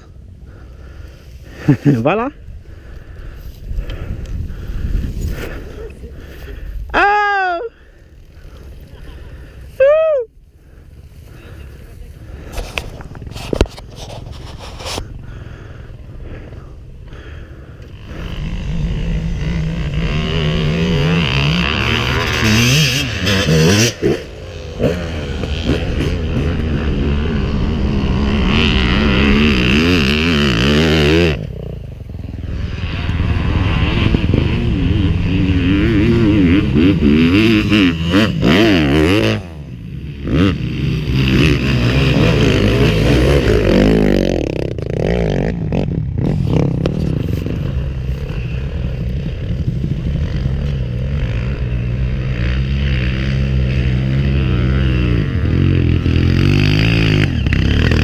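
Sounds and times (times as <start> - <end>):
dirt bike engine revving: 15.0 - 58.0.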